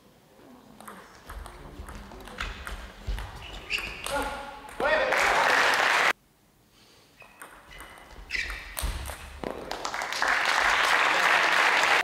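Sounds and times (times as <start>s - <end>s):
shoe squeaks on floor: 3.2s - 4.4s, 7.2s - 8.9s
spectators applauding: 5.0s - 6.1s, 9.7s - 12.0s.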